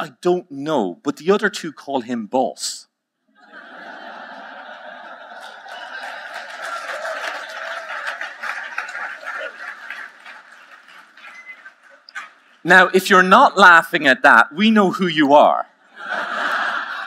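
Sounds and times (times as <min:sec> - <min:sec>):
audience laughing: 0:03.3 - 0:12.6, 0:15.9 - 0:17.0
scattered clapping: 0:05.3 - 0:12.6.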